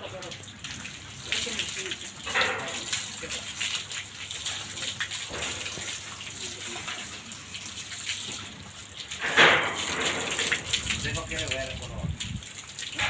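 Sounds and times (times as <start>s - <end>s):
hose water splashing: 0.0s - 13.0s.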